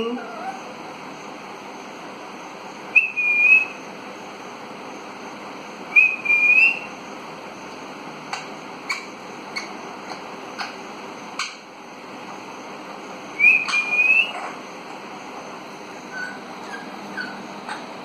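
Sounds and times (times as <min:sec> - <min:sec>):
parakeet whistling: 0:02.9 - 0:03.8, 0:05.9 - 0:06.9, 0:13.4 - 0:14.5, 0:16.1 - 0:17.8
soft bird chirps: 0:07.6 - 0:11.7, 0:13.3 - 0:15.0, 0:15.9 - 0:18.0.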